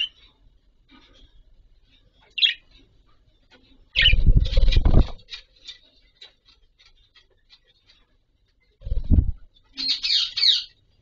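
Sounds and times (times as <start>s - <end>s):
budgerigars chirping: 2.3s - 2.7s, 9.7s - 10.8s
wings fluttering: 3.6s - 8.0s, 8.6s - 9.8s.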